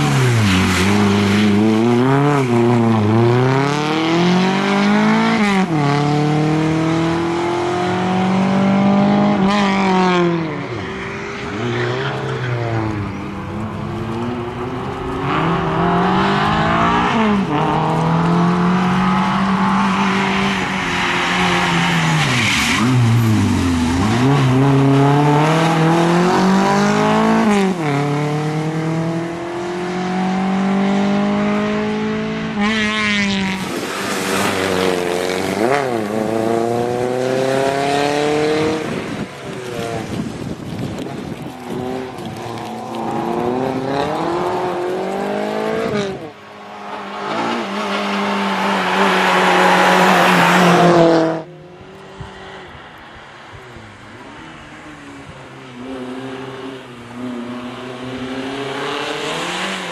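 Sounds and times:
rally car engine revving: 11.4 - 20.6, 41.4 - 51.8.

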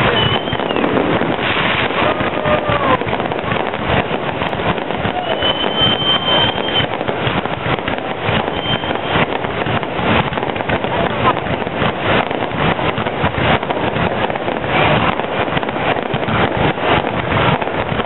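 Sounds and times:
firework whistle: 0.0 - 10.5
fireworks bangs and crackles: 0.0 - 18.0.

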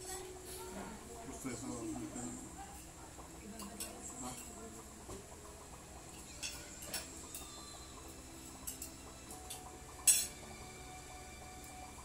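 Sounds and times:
cutlery clinking against plates: 6.1 - 7.6, 8.6 - 10.4.

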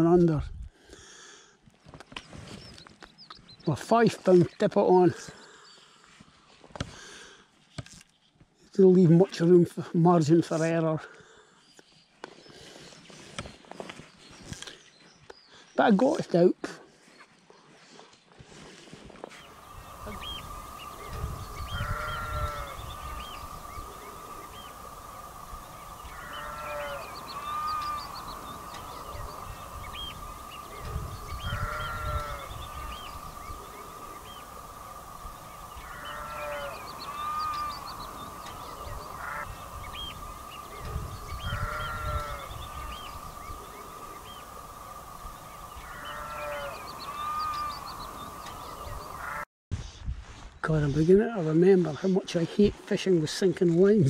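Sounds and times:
geese honking: 19.5 - 49.4.

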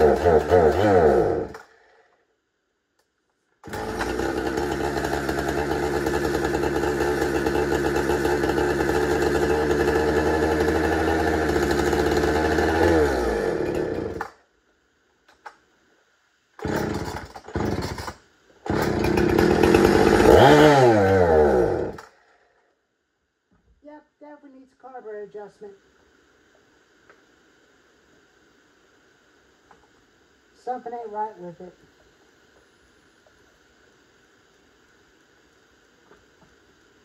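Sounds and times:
chainsaw engine idling: 0.0 - 1.8, 3.6 - 14.4, 16.6 - 22.1.

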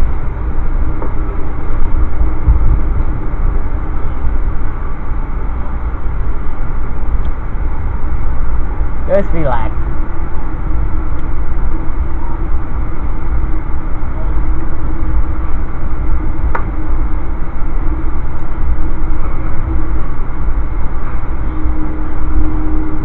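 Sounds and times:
faint hum: 0.0 - 23.0
train rumbling at speed: 0.0 - 23.0.

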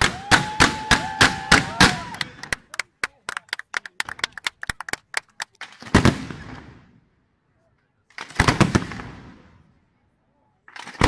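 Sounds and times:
fireworks cracking and banging: 4.0 - 6.9, 8.1 - 9.6.

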